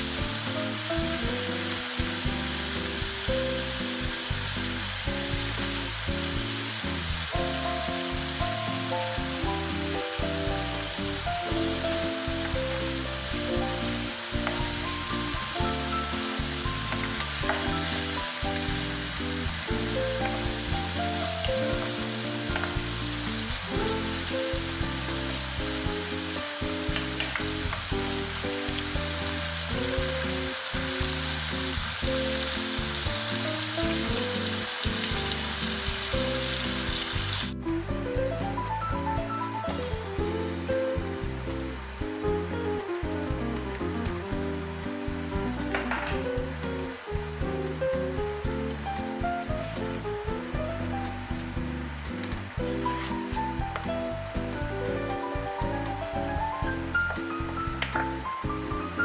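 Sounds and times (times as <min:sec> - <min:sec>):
vegetables sizzling in a frying pan: 0:00.0 - 0:37.7, 0:38.4 - 0:59.0
background music: 0:00.0 - 0:59.0.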